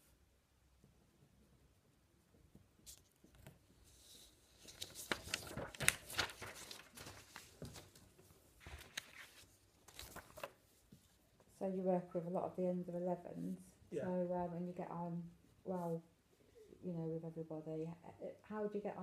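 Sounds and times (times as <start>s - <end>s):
papers rustling and crinkling: 2.9s - 11.2s.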